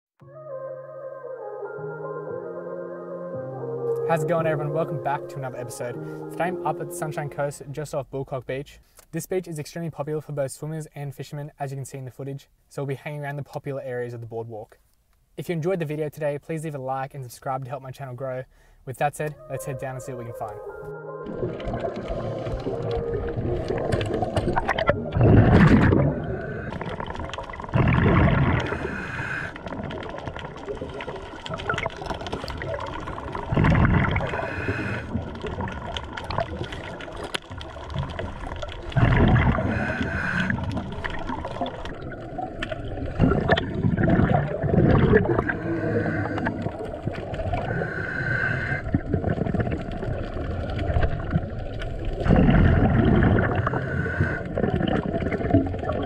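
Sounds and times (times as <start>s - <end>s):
bubbly underwater exhalations: 21.2s - 56.0s
regulator hissing inhalations: 28.7s - 29.6s, 34.3s - 35.2s, 39.6s - 40.6s, 45.4s - 46.7s, 47.6s - 48.9s, 53.6s - 54.5s.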